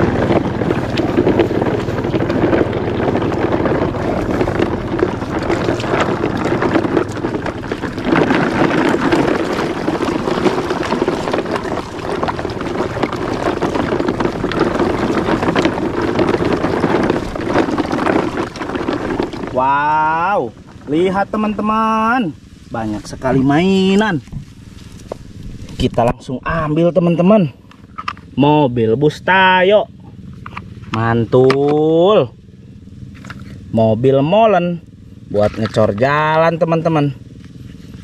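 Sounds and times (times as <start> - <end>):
wind buffeting microphone: 0.0 - 19.7, 23.0 - 26.8
toy truck wheels rolling on pavement: 0.0 - 19.8, 33.1 - 33.6.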